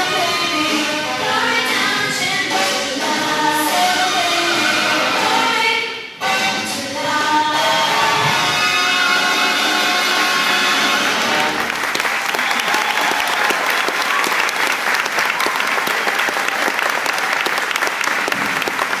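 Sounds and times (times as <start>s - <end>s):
music: 0.0s - 11.9s
audience applauding: 11.0s - 19.0s.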